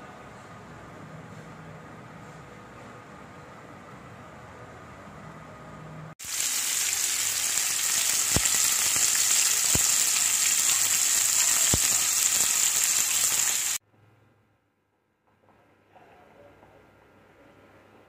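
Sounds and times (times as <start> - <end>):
fish sizzling in oil: 6.2 - 13.8.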